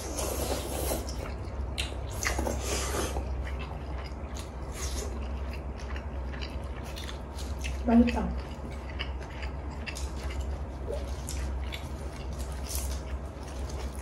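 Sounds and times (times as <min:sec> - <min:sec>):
wet noodle slurps: 0:00.0 - 0:01.3
chewing: 0:00.0 - 0:14.0.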